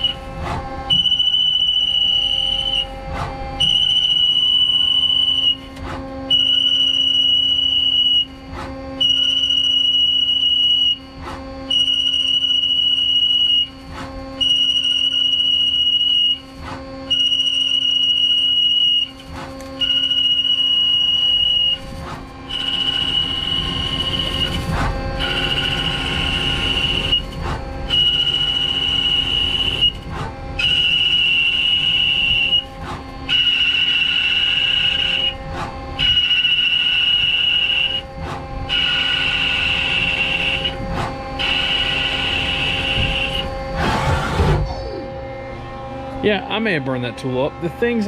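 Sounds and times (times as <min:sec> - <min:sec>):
lathe humming: 0:20.4 - 0:44.4, 0:45.0 - 0:48.0.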